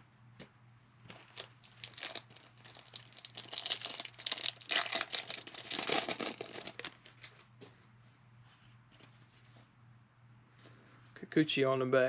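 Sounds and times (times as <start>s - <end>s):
foil wrapper crinkling: 1.1s - 7.4s.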